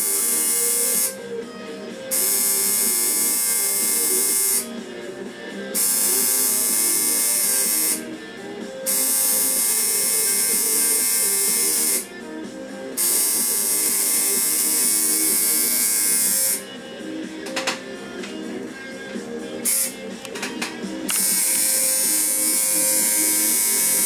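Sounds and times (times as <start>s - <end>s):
tattoo machine buzzing: 0.0s - 1.4s, 2.1s - 4.7s, 5.7s - 8.1s, 8.8s - 12.1s, 13.0s - 16.6s, 19.6s - 20.0s, 21.1s - 24.0s.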